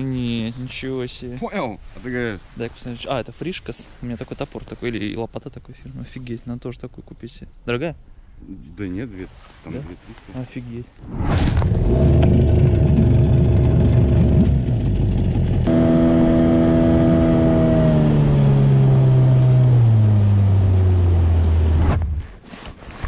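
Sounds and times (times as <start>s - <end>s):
engine running loudly: 11.6s - 20.4s.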